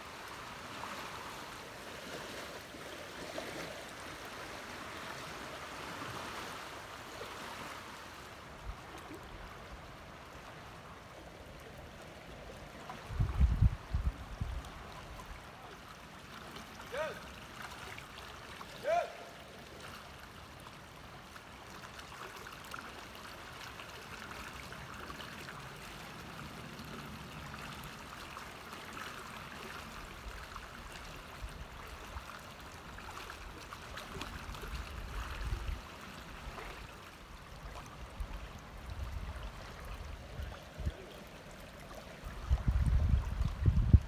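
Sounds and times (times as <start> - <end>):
river water rushing: 0.0 - 44.0
low rumbles on microphone: 42.4 - 44.0.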